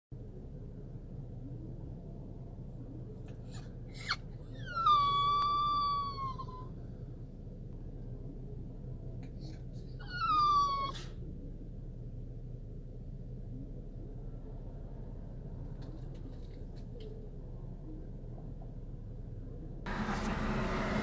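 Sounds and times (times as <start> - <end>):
dog whining: 3.3 - 6.7, 9.4 - 11.2.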